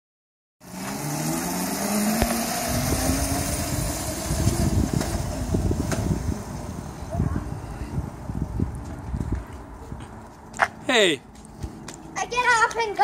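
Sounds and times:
electric scooter motor whining: 0.6 - 8.6
wind rumbling on microphone: 2.2 - 10.5.

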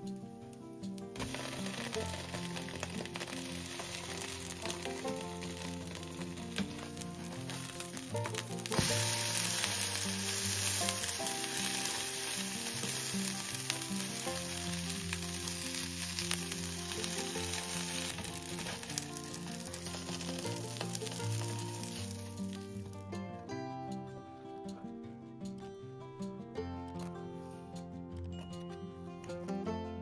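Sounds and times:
food sizzling in a pan: 1.2 - 22.8.

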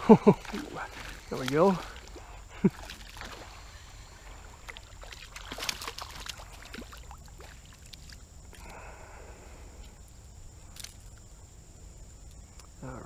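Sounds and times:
water rushing: 0.0 - 8.2
fish thrashing and splashing: 0.0 - 8.6.

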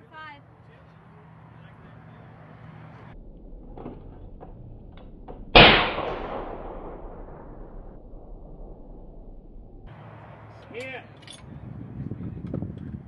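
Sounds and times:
rifle shot echoing: 5.5 - 9.8.

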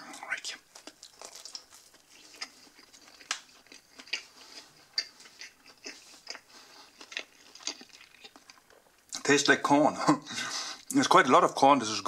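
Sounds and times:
person chewing pizza: 0.0 - 9.2
wet mouth clicks and smacks: 0.2 - 4.3.

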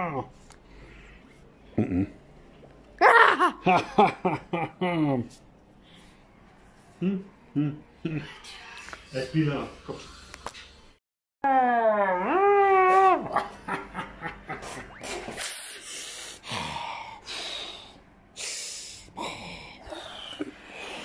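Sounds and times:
wavering vocal cry: 3.0 - 3.6, 11.4 - 13.4.

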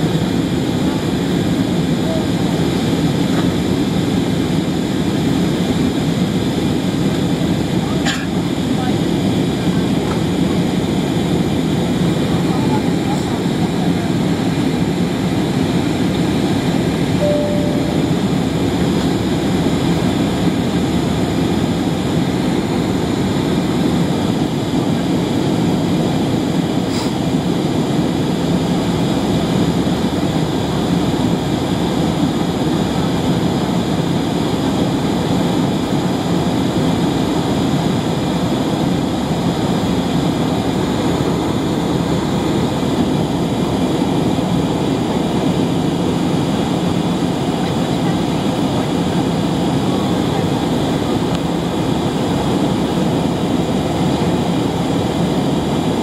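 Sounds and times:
airliner cabin roar: 0.0 - 56.0.

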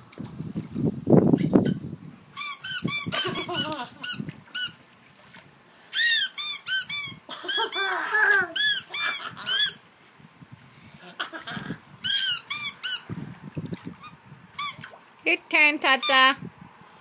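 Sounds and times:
squeaky toy squeaking: 2.4 - 4.8, 5.9 - 7.9, 8.6 - 9.8, 12.0 - 13.0, 14.6 - 14.8.

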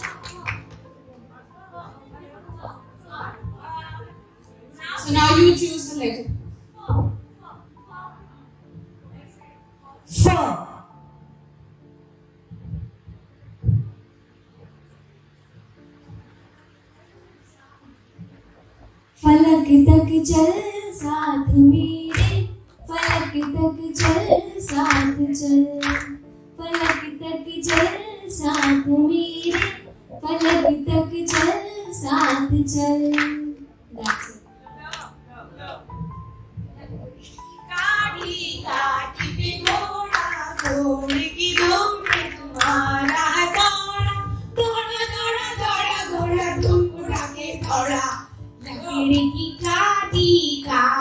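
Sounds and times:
people clapping along: 0.0 - 1.2, 22.0 - 35.2, 37.6 - 50.8
woman singing into a microphone: 19.2 - 34.3, 37.7 - 51.0.

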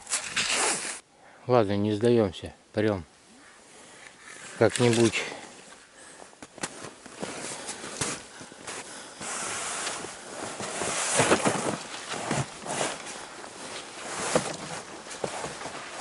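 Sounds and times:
branches rustling and scraping: 0.0 - 1.0, 4.1 - 5.9, 6.5 - 16.0
snow crunching: 6.6 - 16.0.

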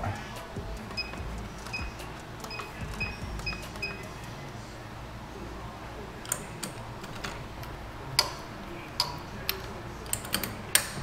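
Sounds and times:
keypad beeping: 0.9 - 4.1.

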